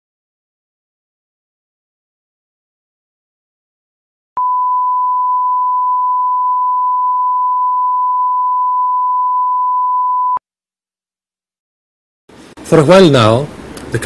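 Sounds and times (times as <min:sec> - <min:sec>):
steady test tone beep: 0:04.4 - 0:10.4.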